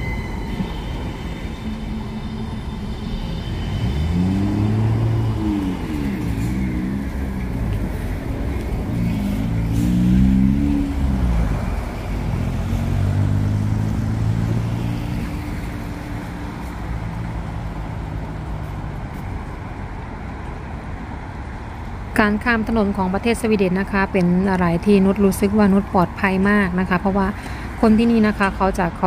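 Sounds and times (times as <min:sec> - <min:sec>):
vehicle engines accelerating past: 0:01.8 - 0:19.9.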